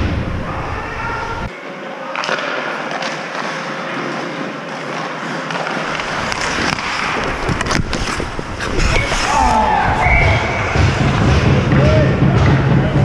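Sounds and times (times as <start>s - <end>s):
hockey sticks and puck clacking: 2.1s - 12.6s
skates scraping on ice: 2.2s - 11.6s.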